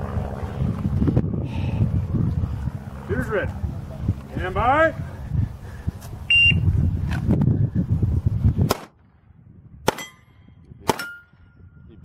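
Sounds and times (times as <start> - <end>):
low rumbling noise: 0.0 - 12.0
pistol shots: 8.7 - 9.0, 9.8 - 10.2, 10.8 - 11.3.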